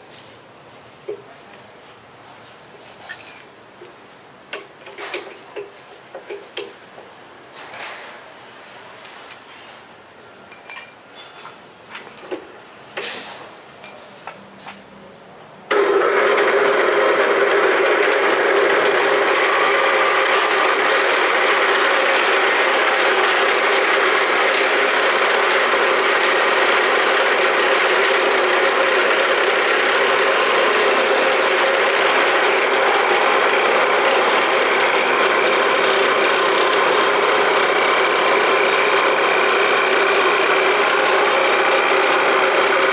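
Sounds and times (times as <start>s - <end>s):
drill press boring wood: 15.7s - 42.9s.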